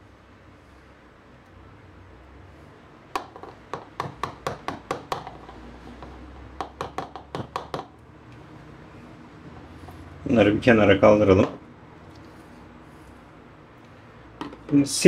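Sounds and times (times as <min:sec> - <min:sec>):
spoon tapping plastic bowl rim: 0:03.2 - 0:08.0.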